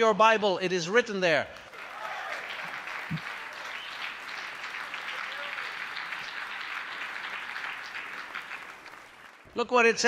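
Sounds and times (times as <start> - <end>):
audience applauding: 1.6 - 9.6.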